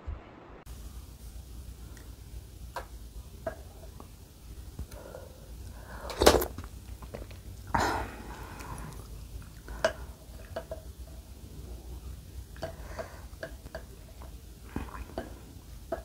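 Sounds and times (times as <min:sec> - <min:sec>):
soft chewing: 0:01.7 - 0:16.0
slurping soup: 0:05.7 - 0:10.6, 0:11.2 - 0:15.6.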